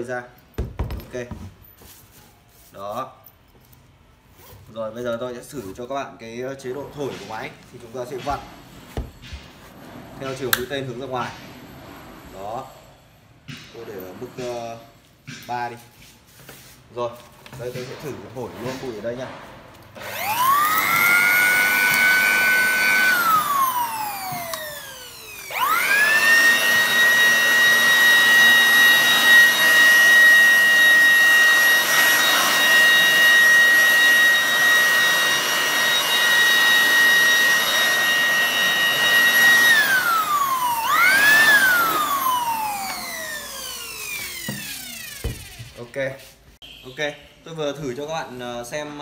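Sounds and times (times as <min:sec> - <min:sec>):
electric blower whining: 0:20.0 - 0:46.0.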